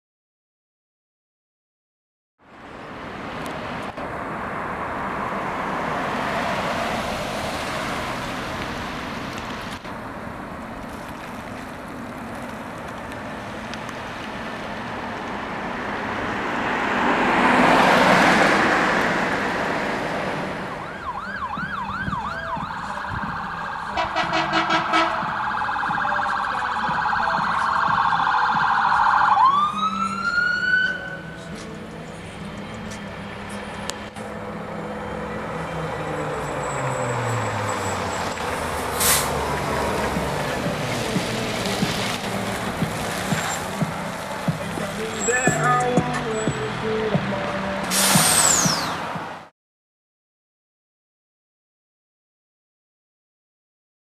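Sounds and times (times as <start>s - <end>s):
road traffic noise: 2.4s - 49.5s
vehicle passing close: 2.6s - 27.6s, 29.6s - 49.5s
fire engine siren: 20.5s - 31.6s, 33.9s - 49.0s.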